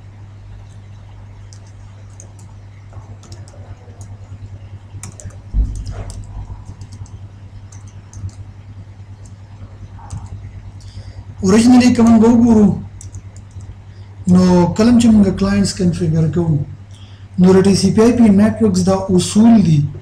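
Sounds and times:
steady low hum: 0:00.0 - 0:20.0
keyboard typing clicks: 0:00.6 - 0:04.2, 0:05.0 - 0:08.5, 0:09.2 - 0:11.0, 0:13.0 - 0:13.7.

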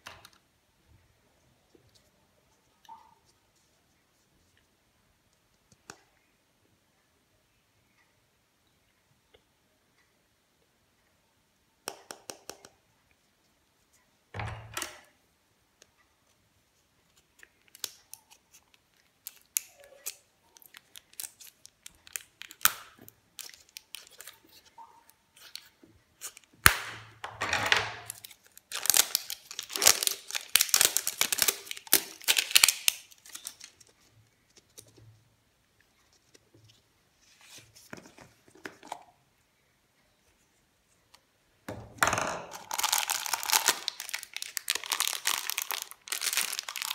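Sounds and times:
plastic wrapping crinkling and tearing: 0:17.4 - 0:24.7, 0:28.0 - 0:34.0, 0:42.5 - 0:46.9.

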